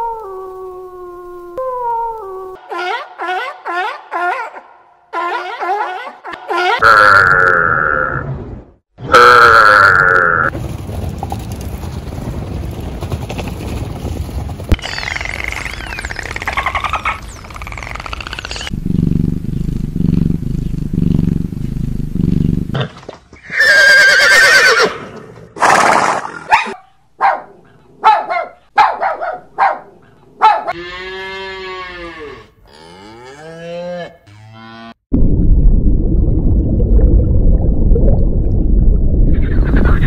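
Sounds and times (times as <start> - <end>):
horse whinny: 23.4 - 26.4
cows mooing: 30.7 - 35.0.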